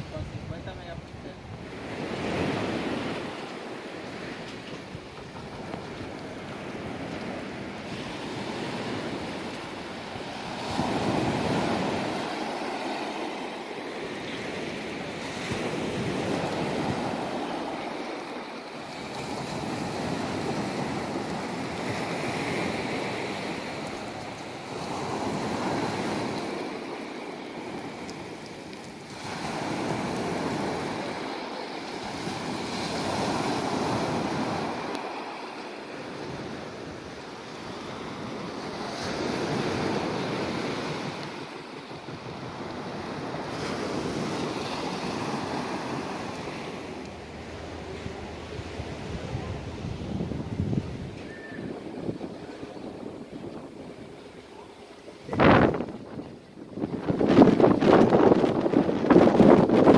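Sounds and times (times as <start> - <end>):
waves washing up a pebbly beach: 1.6 - 47.8.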